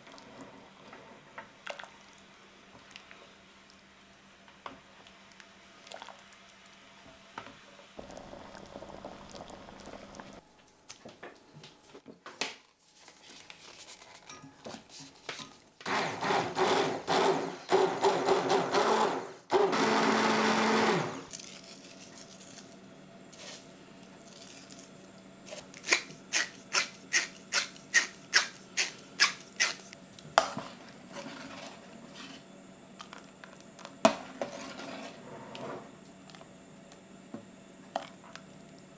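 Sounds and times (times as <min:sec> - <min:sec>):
stick blender running: 0:15.9 - 0:21.3
soft stirring in a pot: 0:29.8 - 0:37.0.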